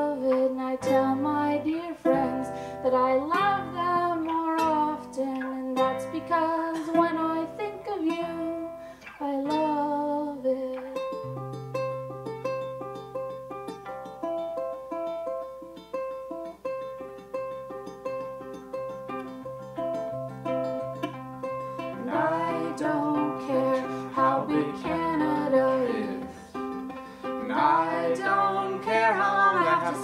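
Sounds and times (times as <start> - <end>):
person singing: 0.0 - 11.2, 21.8 - 30.0
ukulele and acoustic guitar plucking: 0.0 - 30.0.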